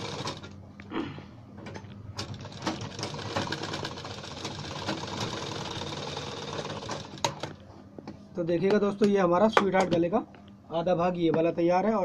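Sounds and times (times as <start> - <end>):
sewing machine running: 0.0 - 0.6, 2.2 - 7.5.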